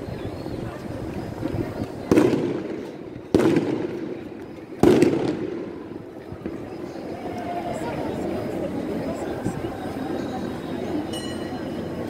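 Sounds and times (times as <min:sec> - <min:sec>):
murmur of large crowd: 0:00.0 - 0:12.0
loud firework bangs: 0:02.1 - 0:05.8.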